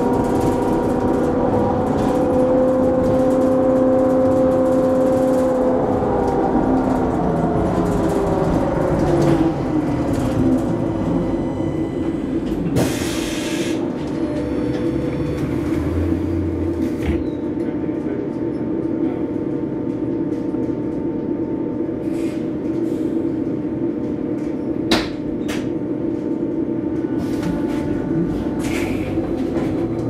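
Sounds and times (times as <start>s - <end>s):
road noise: 0.0s - 17.6s, 26.6s - 30.0s.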